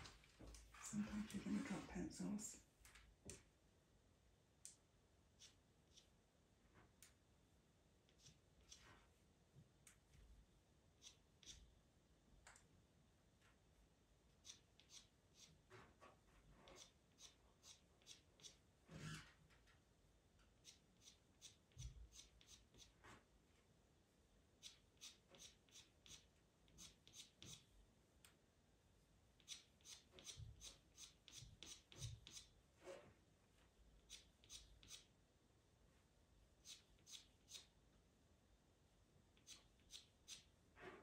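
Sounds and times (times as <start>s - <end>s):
pencil scratching on paper: 16.6s - 19.2s, 20.6s - 23.0s, 29.4s - 33.0s.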